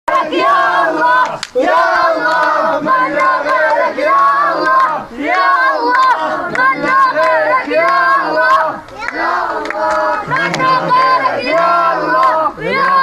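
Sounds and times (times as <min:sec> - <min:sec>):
crowd chanting in unison: 0:00.1 - 0:13.0
hand clapping: 0:02.2 - 0:02.6, 0:03.2 - 0:03.8, 0:06.5 - 0:08.1, 0:08.8 - 0:10.9, 0:11.5 - 0:12.5.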